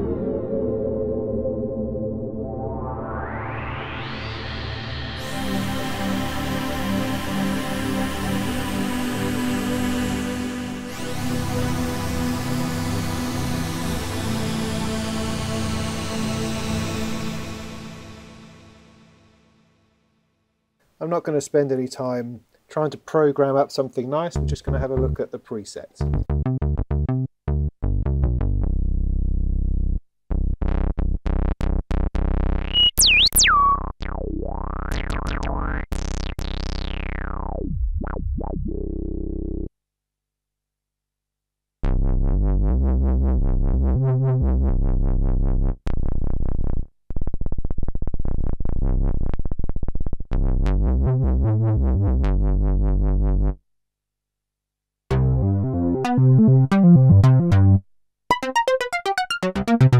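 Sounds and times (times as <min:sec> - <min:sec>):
synthesizer sustained notes: 0:00.0 - 0:07.4, 0:32.7 - 0:39.7, 0:55.1 - 0:59.9
deep bass synthesizer patch: 0:26.0 - 0:39.7, 0:41.8 - 0:53.6, 0:55.1 - 0:59.9.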